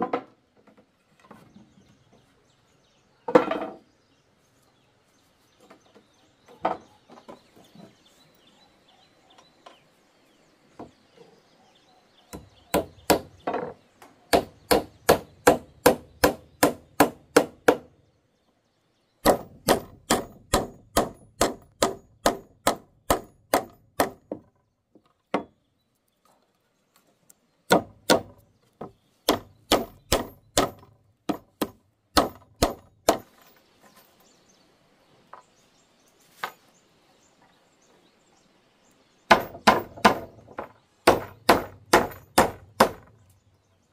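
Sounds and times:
tool striking wood: 12.3 - 17.9, 19.2 - 24.5, 25.3 - 25.6, 27.7 - 33.4, 39.3 - 43.2.

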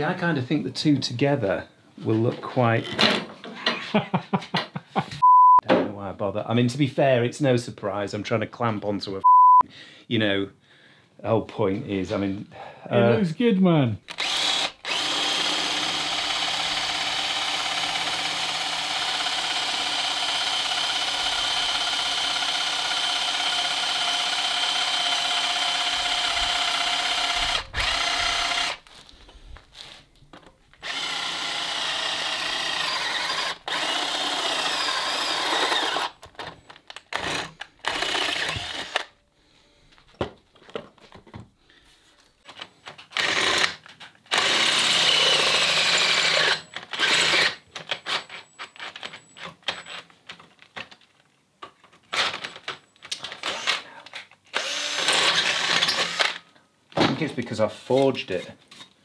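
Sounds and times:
electric drill boring into steel: 14.1 - 28.8, 30.8 - 36.2, 37.1 - 39.1, 43.2 - 48.3, 53.4 - 53.9, 54.5 - 56.4.

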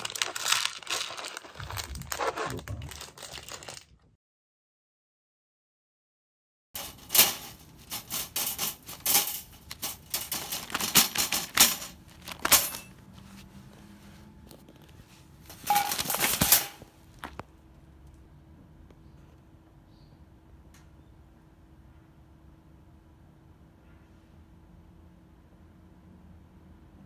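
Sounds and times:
wire cage trap rattling: 6.8 - 12.9, 15.5 - 16.8.

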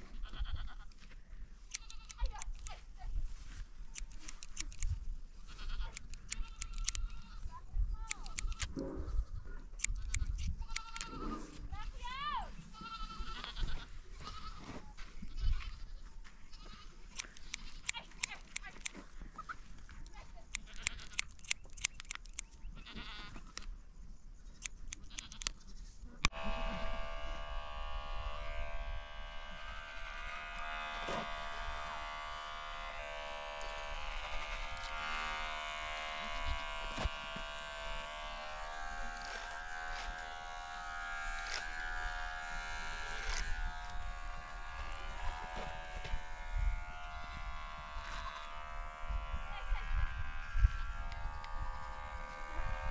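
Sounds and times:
electric hair clippers buzzing: 0.3 - 2.8, 3.9 - 8.9, 9.8 - 11.2, 12.0 - 14.6, 17.1 - 19.0, 20.4 - 23.1, 24.6 - 25.6, 26.2 - 52.9
scissors snipping hair: 1.7 - 2.8, 3.9 - 5.0, 5.8 - 7.3, 8.0 - 8.8, 9.8 - 11.2, 17.1 - 19.0, 20.0 - 22.5, 24.6 - 25.6, 30.0 - 49.8.

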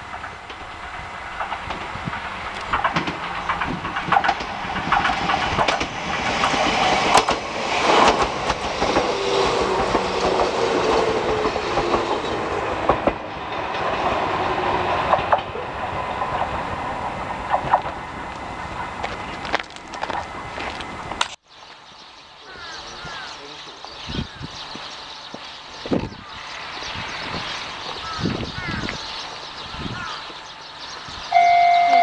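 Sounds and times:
train whining tone: 0.0 - 17.8, 31.3 - 32.0
train wheels clacking over rail joints: 0.1 - 16.8, 17.4 - 21.4.

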